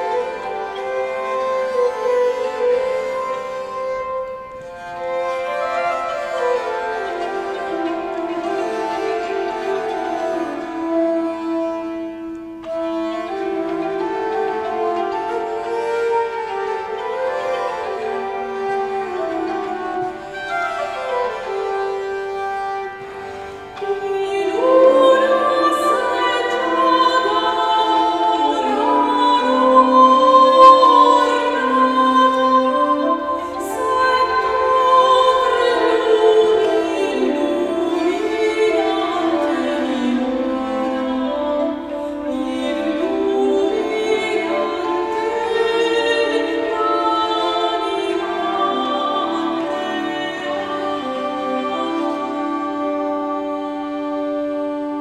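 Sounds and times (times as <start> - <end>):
bowed fiddle: 0.0 - 55.0
woman singing operatically: 23.8 - 54.6.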